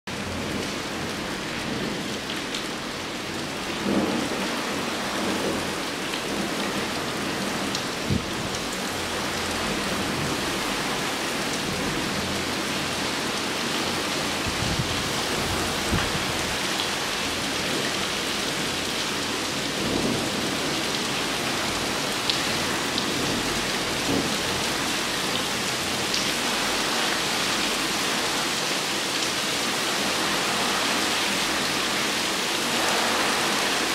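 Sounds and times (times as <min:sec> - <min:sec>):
torrential rain pouring: 0:00.1 - 0:33.9
low thunder rumbling: 0:00.3 - 0:09.2, 0:14.0 - 0:17.9.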